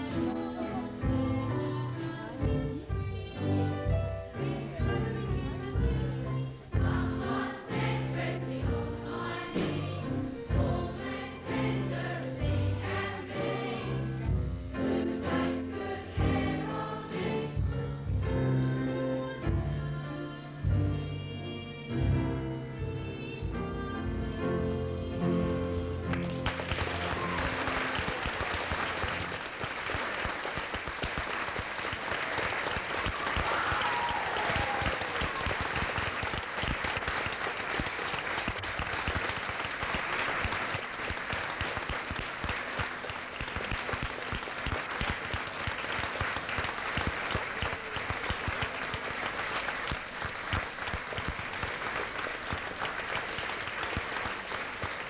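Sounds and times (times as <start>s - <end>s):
stage music chords: 0.0s - 55.0s
audience applause: 26.1s - 55.0s.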